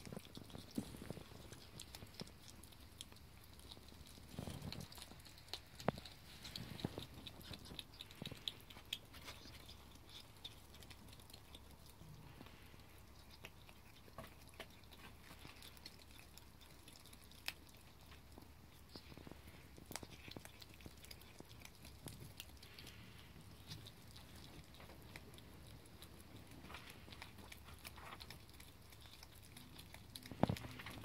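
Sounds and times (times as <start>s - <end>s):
ferrets gnawing bone: 0.0s - 31.0s.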